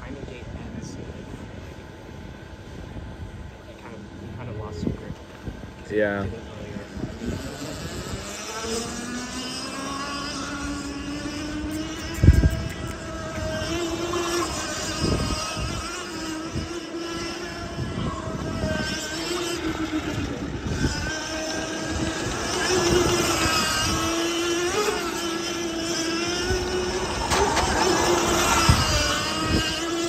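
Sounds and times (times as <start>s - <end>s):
race car engine running: 18.4s - 30.0s.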